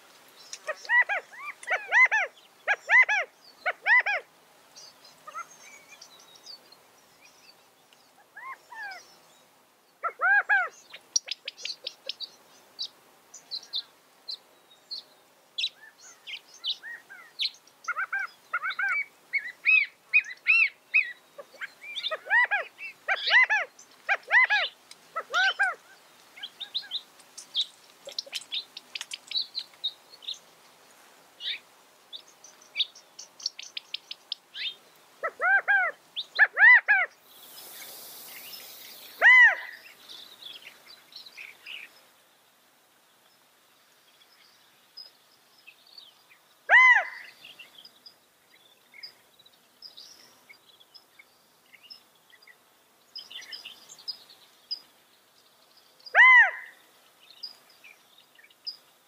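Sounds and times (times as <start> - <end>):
small songbirds chirping: 0.0 - 59.0
quail calling: 0.6 - 4.3, 5.3 - 5.5, 10.0 - 12.0, 17.9 - 25.8, 34.6 - 37.1, 39.2 - 39.8, 46.7 - 47.4, 56.2 - 56.8.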